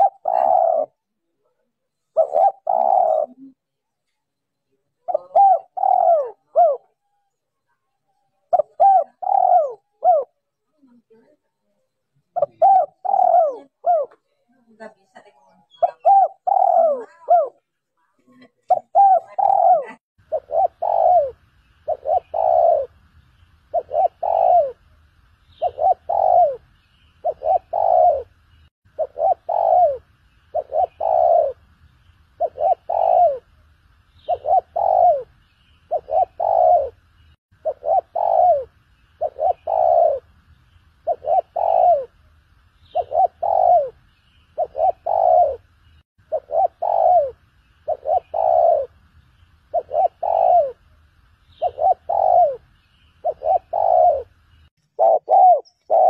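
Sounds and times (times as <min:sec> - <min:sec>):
dove cooing: 0:00.0 - 0:01.0, 0:02.1 - 0:03.6, 0:05.0 - 0:07.1, 0:08.5 - 0:10.9, 0:12.4 - 0:14.2, 0:15.6 - 0:17.6, 0:18.6 - 0:23.0, 0:23.7 - 0:31.6, 0:32.4 - 0:33.6, 0:34.2 - 0:37.0, 0:37.6 - 0:40.3, 0:41.0 - 0:42.3, 0:42.9 - 0:49.0, 0:49.7 - 0:56.0.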